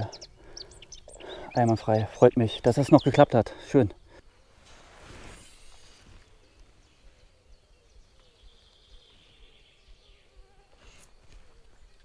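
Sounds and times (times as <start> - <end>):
flying insect buzzing: 4.6 - 6.4.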